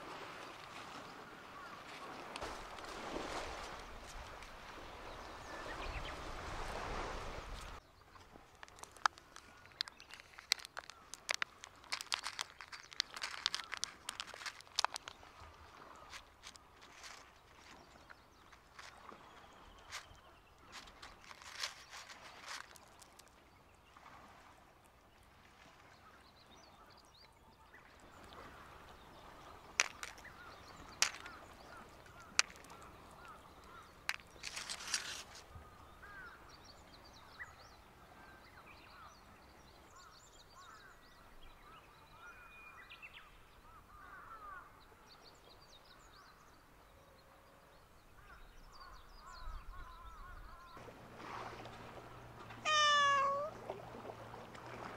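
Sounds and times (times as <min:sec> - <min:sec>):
small birds chirping: 0:07.6 - 0:23.4, 0:28.1 - 0:37.8, 0:52.4 - 0:53.5
dry kibble rustling on paper plate: 0:08.6 - 0:15.2, 0:16.0 - 0:19.0, 0:19.8 - 0:23.3, 0:29.8 - 0:33.4, 0:34.0 - 0:35.4.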